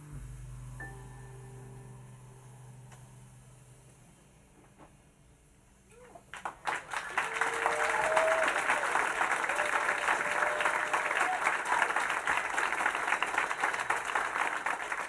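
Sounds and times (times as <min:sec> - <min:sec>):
audience applause: 0:06.3 - 0:15.0
shouted cheers: 0:06.8 - 0:13.8.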